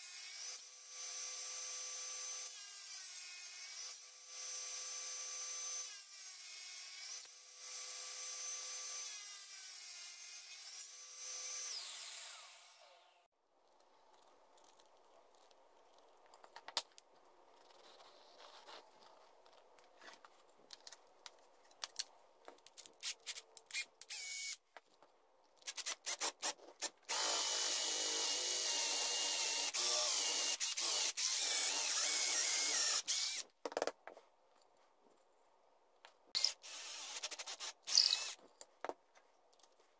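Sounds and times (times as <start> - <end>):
power drill boring into wood: 24.0 - 24.6, 27.1 - 33.4, 36.4 - 38.4.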